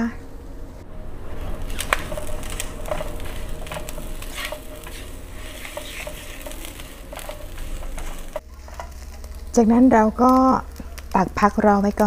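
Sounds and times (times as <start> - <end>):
food sizzling: 0.8 - 12.0
spatula scraping a wok: 1.3 - 9.5.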